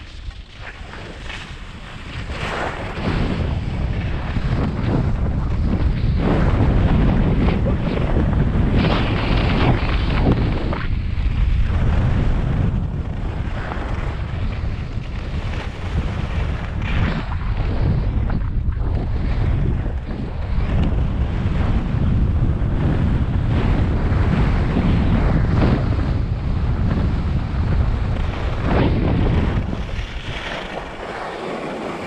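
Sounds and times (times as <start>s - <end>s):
skis scraping over snow: 0.0s - 32.0s
wind buffeting microphone: 0.0s - 32.0s.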